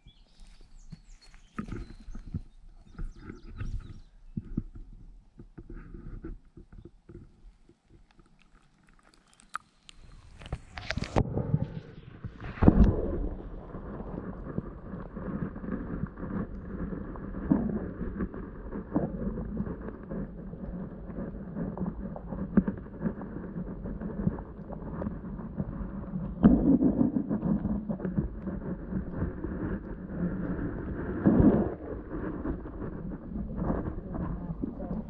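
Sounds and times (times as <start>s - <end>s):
muffled underwater water wash: 0.0s - 35.0s.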